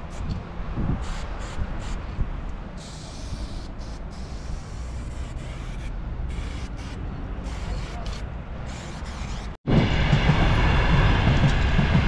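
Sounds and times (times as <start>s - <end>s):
spray paint can hissing: 2.8s - 9.5s.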